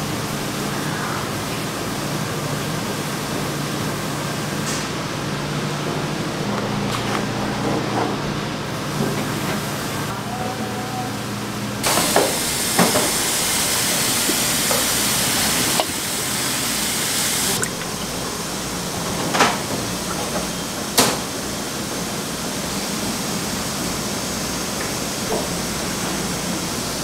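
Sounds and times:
water rushing with a hiss: 11.8 - 19.0.

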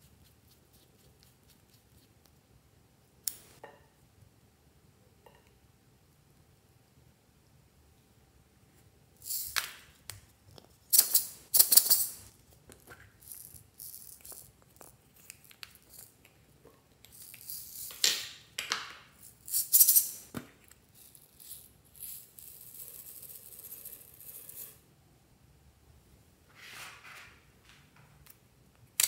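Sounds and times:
plastic beads rattling in containers: 9.2 - 9.7, 10.9 - 12.2, 13.1 - 16.2, 17.0 - 18.1, 19.2 - 24.8
tiny beads pouring out: 17.1 - 18.0.

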